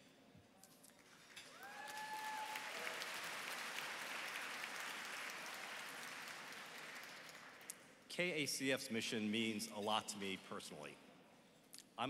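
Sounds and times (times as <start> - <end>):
large audience applauding: 1.0 - 7.7.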